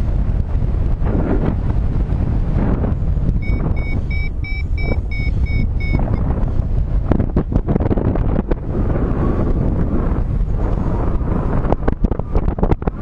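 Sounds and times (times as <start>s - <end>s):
wind buffeting microphone: 0.0s - 13.0s
short high beeps: 3.4s - 6.2s.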